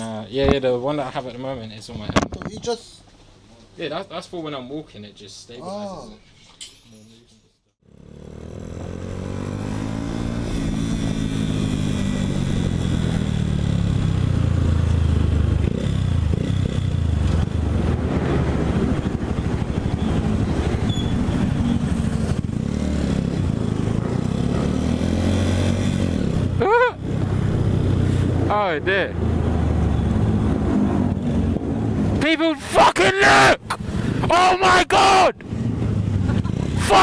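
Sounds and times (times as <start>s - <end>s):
motorcycle engine running: 7.8s - 28.4s
wind rushing over microphone: 17.3s - 24.1s.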